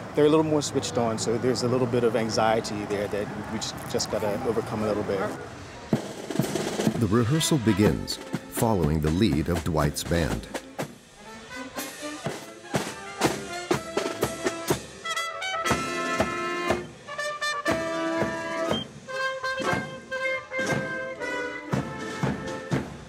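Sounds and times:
side drums beating: 0:05.9 - 0:23.0
held brass chords: 0:06.4 - 0:23.0.

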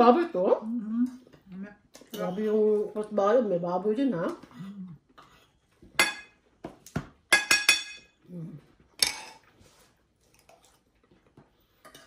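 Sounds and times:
cutlery clinking on plates: 0:05.2 - 0:06.4, 0:07.3 - 0:08.2, 0:09.0 - 0:09.5, 0:11.8 - 0:12.0.

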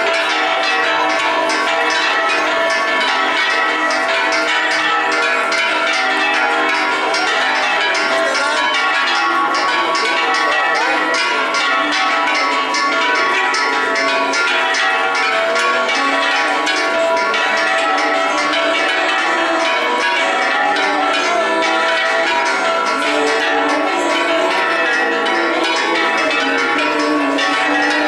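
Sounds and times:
church bells pealing: 0:00.0 - 0:28.0.

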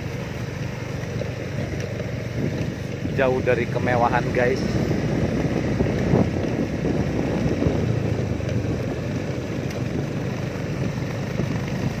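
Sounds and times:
small motorcycle engine running: 0:00.0 - 0:12.0
tyres rumbling on gravel road: 0:00.0 - 0:12.0.

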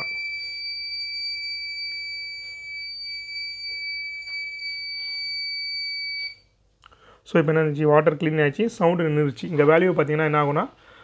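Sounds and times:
buzzer high-pitched tone: 0:00.0 - 0:06.4.

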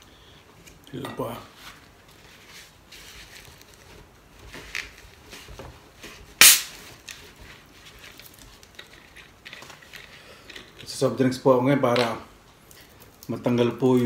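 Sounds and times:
carbonation hiss: 0:06.4 - 0:06.7.

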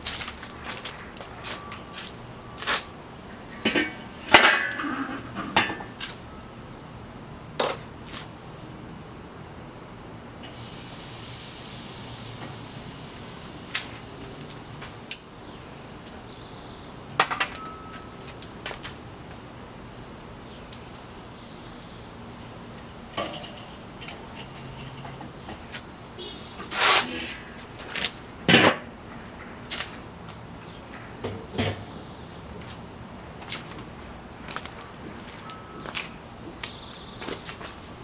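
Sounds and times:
grill lid clanking: 0:03.6 - 0:06.0, 0:23.1 - 0:25.6.

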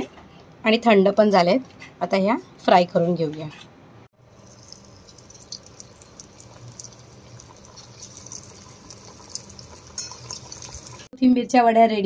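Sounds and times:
food deep-frying in hot oil: 0:04.1 - 0:11.1.

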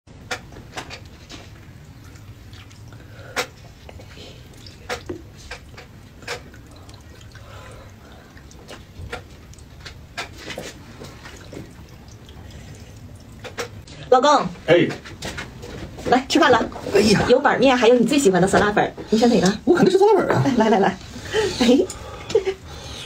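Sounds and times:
low steady hum: 0:00.1 - 0:23.0
wet chewing smacks: 0:01.0 - 0:14.1.

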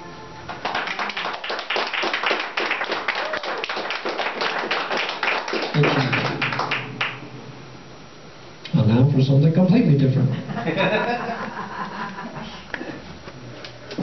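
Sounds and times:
audience applause: 0:00.5 - 0:07.2.

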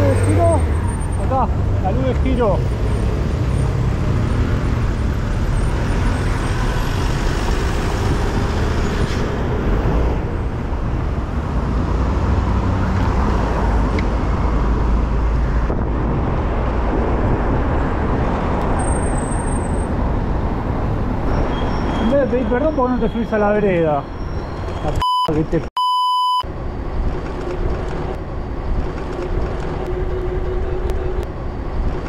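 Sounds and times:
city street traffic: 0:00.0 - 0:32.0
wind on microphone: 0:13.9 - 0:18.8.

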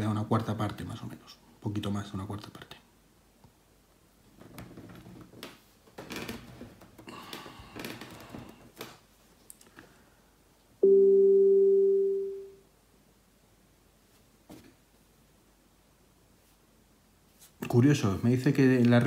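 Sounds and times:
alert chime tone: 0:10.8 - 0:12.6.

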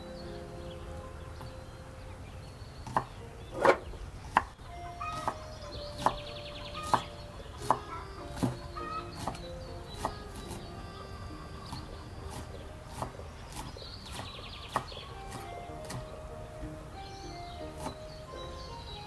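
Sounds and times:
knife chopping on wooden board: 0:02.8 - 0:10.7, 0:11.7 - 0:16.1.

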